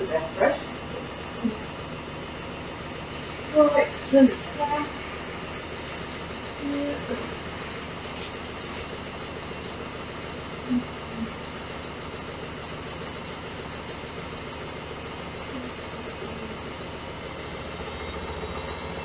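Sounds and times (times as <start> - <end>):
washing machine humming: 0.0 - 19.0.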